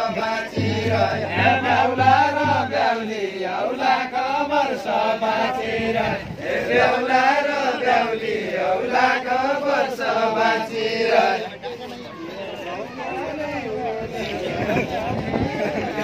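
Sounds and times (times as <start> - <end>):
group singing folk chant: 0.0 - 11.8.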